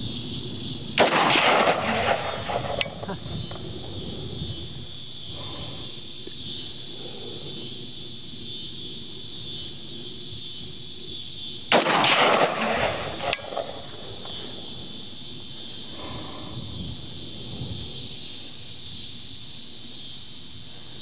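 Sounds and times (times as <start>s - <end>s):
rifle shot with echo: 1.0s - 3.6s, 11.7s - 14.8s.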